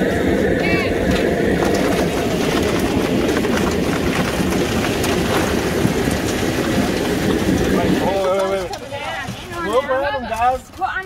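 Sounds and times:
burner roaring: 0.0s - 8.8s
crawfish and scoop clattering: 1.0s - 11.0s.

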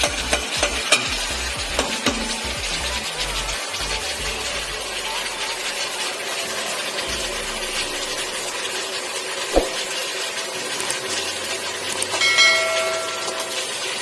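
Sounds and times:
meat sizzling in a pot: 0.0s - 14.0s
sharp thump: 9.5s - 9.8s.

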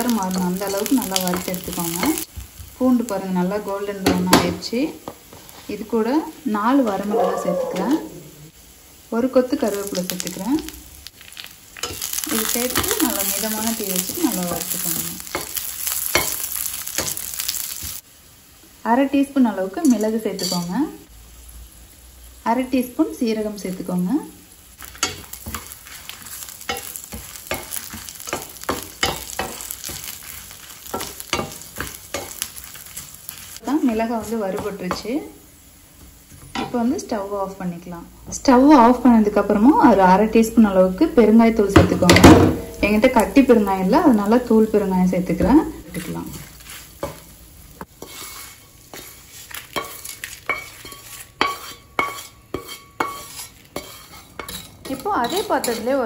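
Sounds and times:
light oil sizzle: 0.0s - 56.0s
spatula scraping pan: 24.8s - 35.1s, 45.9s - 47.2s, 47.8s - 56.0s
wooden spatula scraping a steel pan: 45.9s - 47.2s, 47.9s - 56.0s.

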